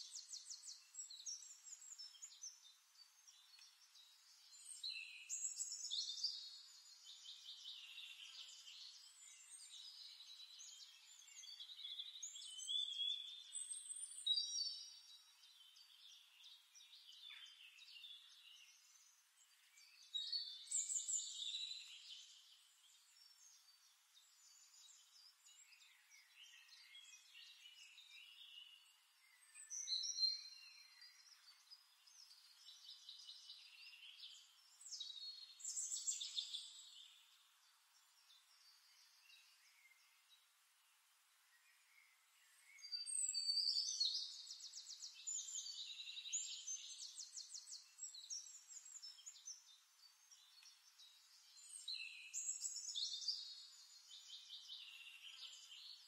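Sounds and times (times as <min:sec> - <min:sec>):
birds chirping and trilling: 0:00.0 - 0:40.5, 0:41.6 - 0:56.0.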